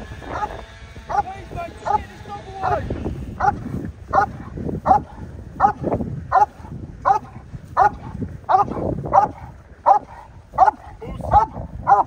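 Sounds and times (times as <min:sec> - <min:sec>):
dog barking: 0:00.3 - 0:01.3, 0:02.6 - 0:12.0.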